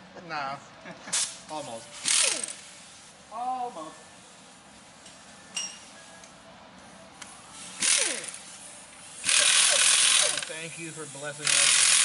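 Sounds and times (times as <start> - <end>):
ratchet wrench clicking: 2.0 - 2.7, 7.2 - 8.5, 9.2 - 10.6, 11.4 - 12.0.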